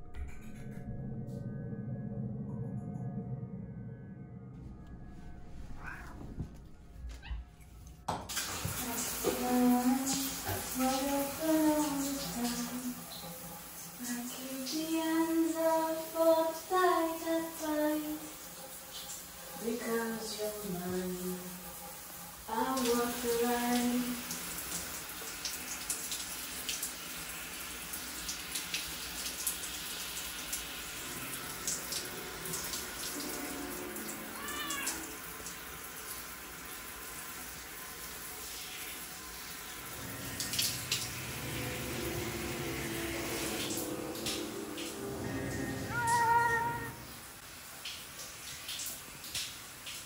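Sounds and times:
cat meowing: 5.6s - 7.6s, 34.3s - 35.2s, 45.8s - 47.1s
shower spraying onto tiles: 8.3s - 50.0s.

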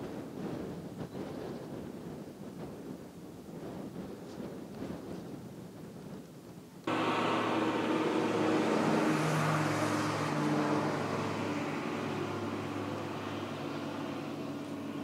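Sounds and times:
vehicle engine running: 6.9s - 15.0s.

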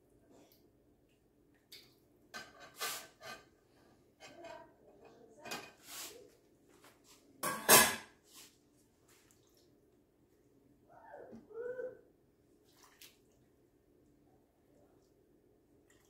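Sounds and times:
wet handling and dribbling: 12.6s - 13.5s.

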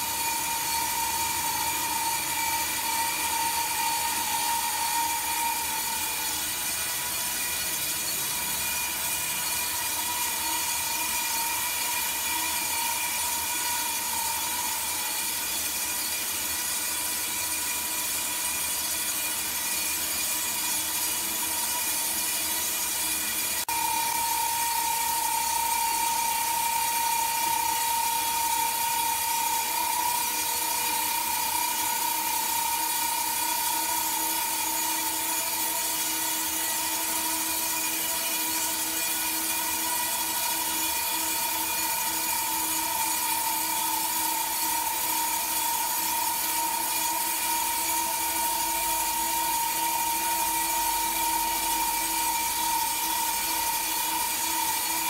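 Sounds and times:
band sawmill whining: 0.0s - 15.5s.

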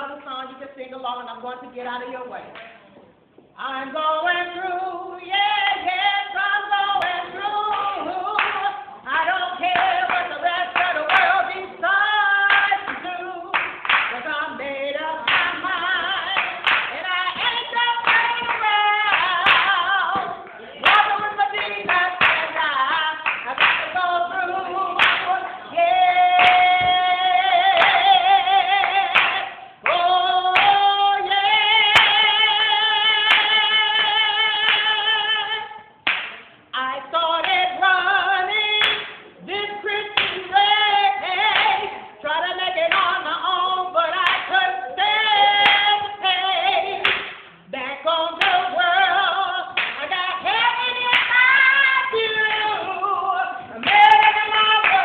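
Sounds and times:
person singing with vibrato: 3.6s - 55.0s
people clapping along: 7.0s - 14.6s, 15.2s - 36.6s, 38.8s - 47.6s, 48.4s - 53.0s, 53.6s - 55.0s.

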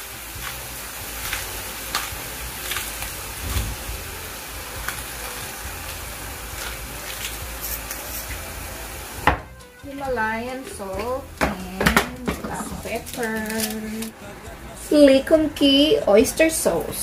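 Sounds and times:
vegetables sizzling in a wok: 0.0s - 14.1s
crackles and pops: 0.4s - 4.1s, 4.8s - 8.4s.

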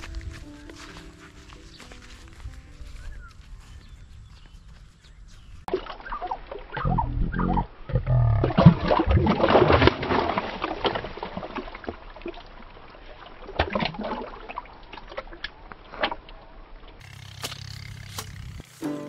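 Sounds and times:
water splashing and sloshing: 5.7s - 18.3s.

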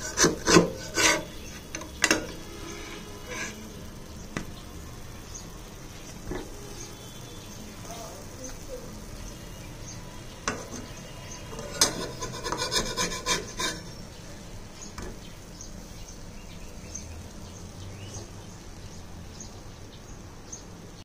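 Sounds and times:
scraping and rubbing: 0.0s - 3.8s, 10.5s - 14.1s
pancakes frying hiss: 0.0s - 21.0s.

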